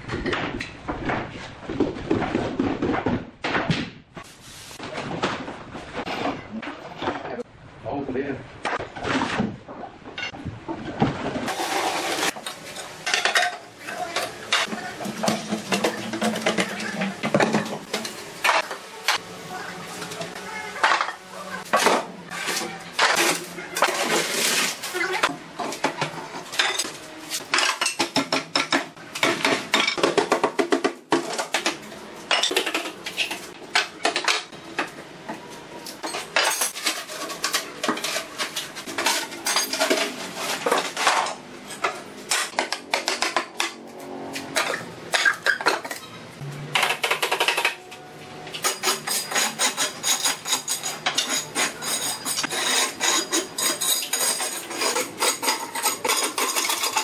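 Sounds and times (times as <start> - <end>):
metal trowel scraping concrete: 48.6 - 57.0.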